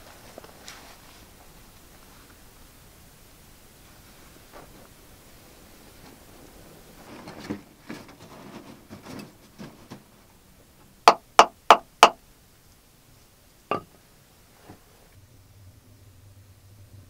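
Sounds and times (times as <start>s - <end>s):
scuffing and rustling on earth floor: 0.0s - 2.4s, 3.8s - 10.4s
bamboo stick knocking earth wall: 11.1s - 12.2s.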